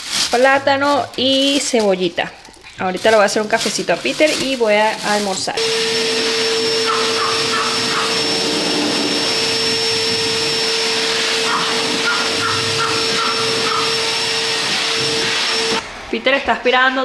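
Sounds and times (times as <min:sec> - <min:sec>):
vacuum cleaner whining: 0:04.9 - 0:16.2.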